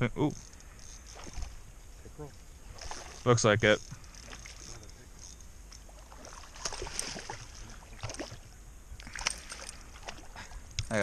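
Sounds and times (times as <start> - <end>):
small water splashes: 2.6 - 3.4, 5.8 - 10.6.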